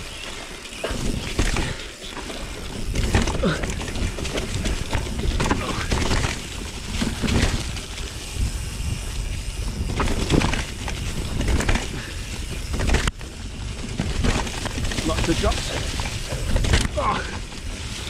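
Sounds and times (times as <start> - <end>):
bike knocking and rattling: 0.0 - 18.0
bike tyres rolling over leaves: 0.0 - 18.0
wind buffeting microphone: 2.5 - 18.0.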